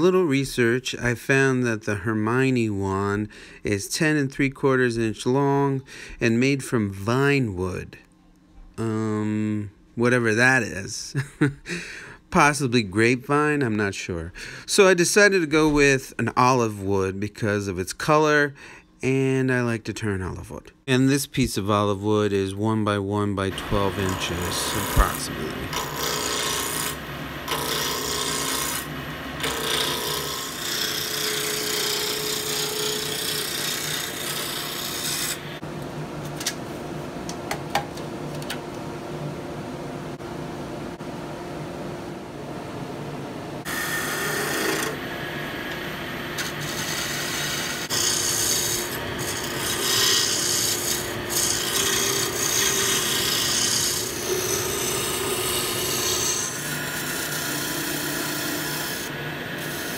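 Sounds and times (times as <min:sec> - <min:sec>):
lathe motor hum: 0:23.6 - 0:35.6, 0:43.6 - 0:59.9
turning tool shaving hiss: 0:23.6 - 0:35.6, 0:43.7 - 0:45.0, 0:46.4 - 0:59.9.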